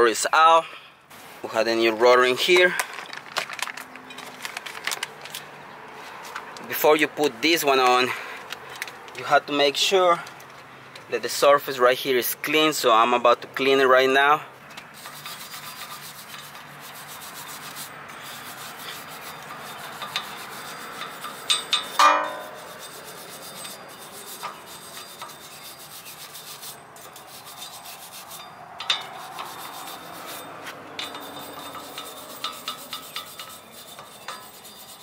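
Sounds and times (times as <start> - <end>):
wire brush scrubbing metal: 13.6 - 35.0
short metallic ring: 21.0 - 25.8.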